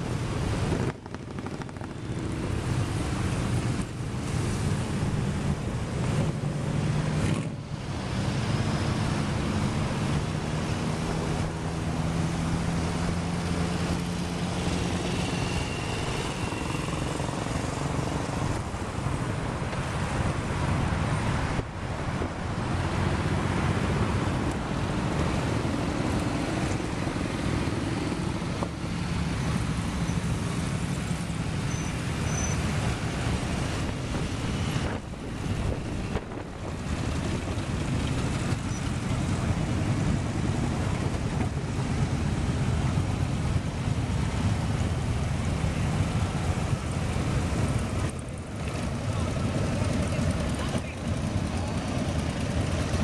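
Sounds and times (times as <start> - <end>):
motorcycles riding past: 0.5 - 20.3.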